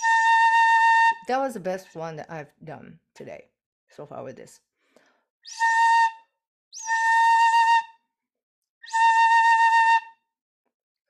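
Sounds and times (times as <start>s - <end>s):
flute held notes: 0.0s - 1.2s.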